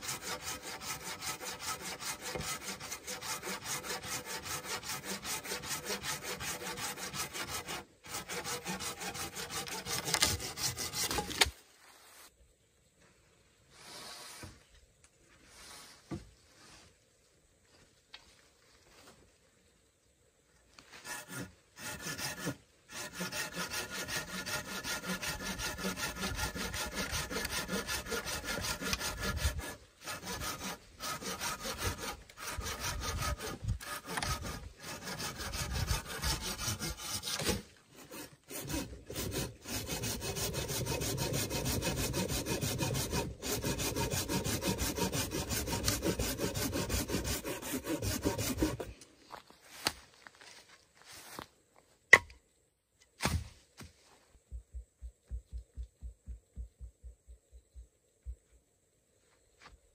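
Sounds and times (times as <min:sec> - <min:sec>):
hand saw cutting wood: 0:00.0 - 0:11.6, 0:21.0 - 0:49.0.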